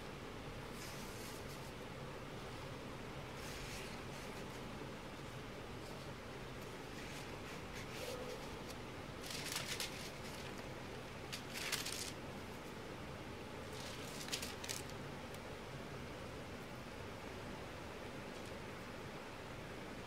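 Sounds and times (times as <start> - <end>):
steady low hiss: 0.0 - 20.0
paper and card rustling: 6.9 - 12.2, 13.6 - 15.0.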